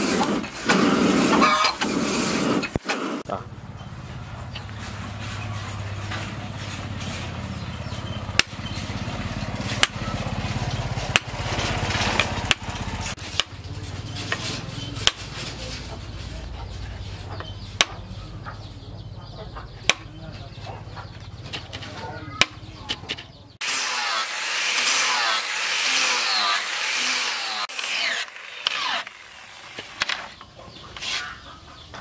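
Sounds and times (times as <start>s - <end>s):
small engine humming: 3.3s - 14.5s, 23.6s - 30.4s.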